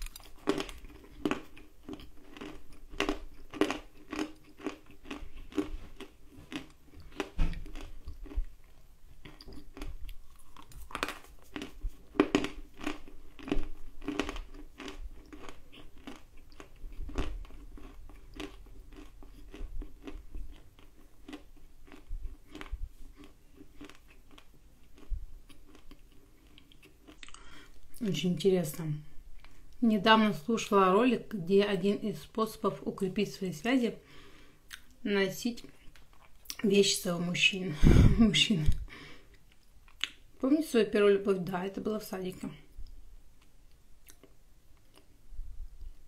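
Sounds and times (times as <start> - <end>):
crunching and chewing: 0.0 - 28.0, 35.6 - 36.6, 38.7 - 40.3, 42.8 - 45.2.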